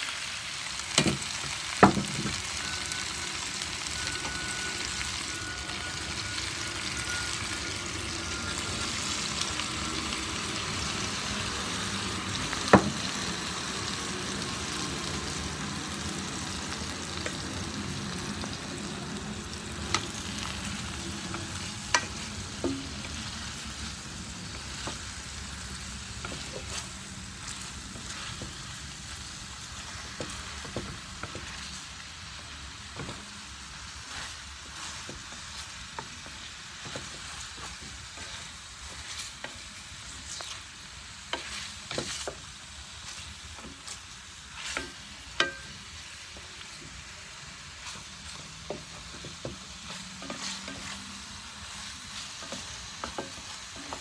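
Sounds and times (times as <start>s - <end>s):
chicken sizzling in hot oil: 0.0s - 54.0s
utensils knocking against pan: 44.7s - 45.8s, 52.4s - 54.0s.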